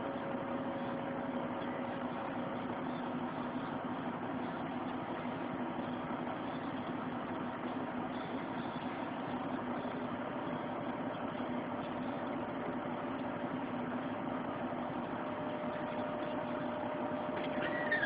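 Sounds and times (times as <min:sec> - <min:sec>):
short squeak: 0:17.4 - 0:18.0.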